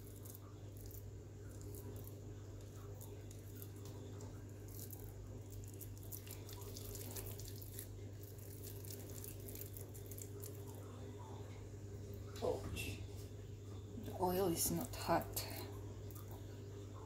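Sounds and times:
minced meat squishing by hand: 0.0s - 12.3s
steady low hum: 0.0s - 17.0s.

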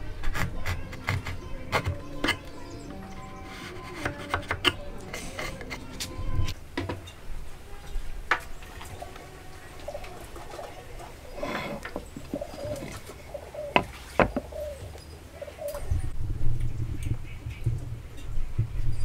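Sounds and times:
bird cooing: 0.6s - 16.2s
wood knocking on workbench: 11.4s - 13.0s, 13.7s - 14.5s.

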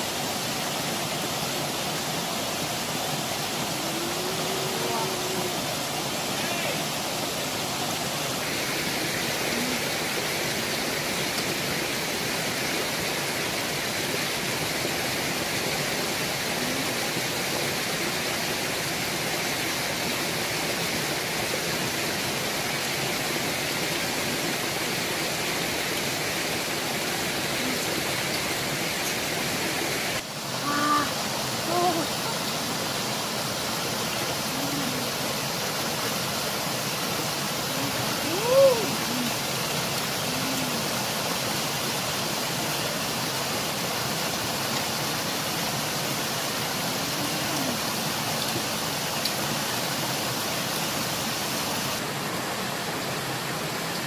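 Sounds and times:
waterfall rushing over rocks: 0.0s - 54.0s
short voice sounds: 3.8s - 6.8s, 30.6s - 32.4s, 37.7s - 39.4s.

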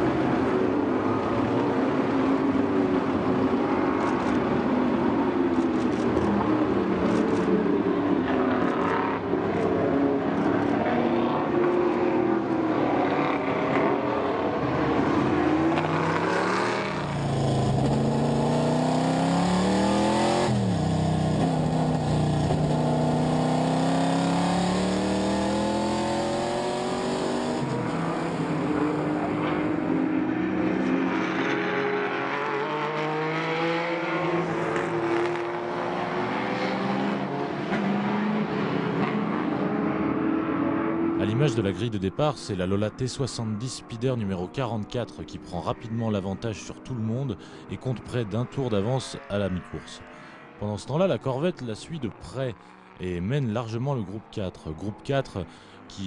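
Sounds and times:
racing car engines passing: 0.0s - 56.0s
engine revving through gears: 15.0s - 29.1s.

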